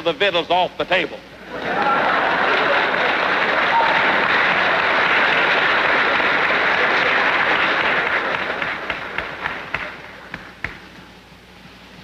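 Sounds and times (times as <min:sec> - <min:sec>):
audience applauding: 0:01.4 - 0:10.8.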